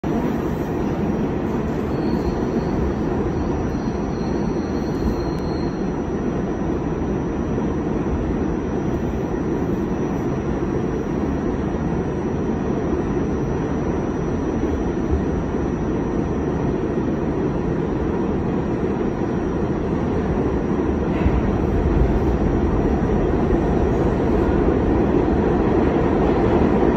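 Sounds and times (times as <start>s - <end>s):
subway car rumble: 0.0s - 26.9s
faint high squeal: 1.5s - 6.1s.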